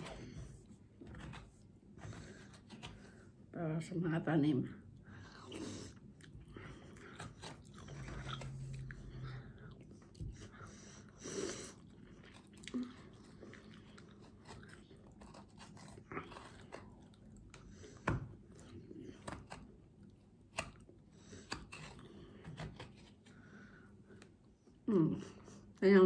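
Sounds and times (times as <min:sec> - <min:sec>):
chewing: 0:05.2 - 0:20.1.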